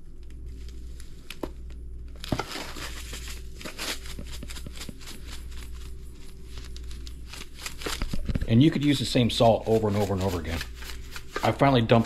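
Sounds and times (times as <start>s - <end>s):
salt grains pouring: 2.6s - 12.0s.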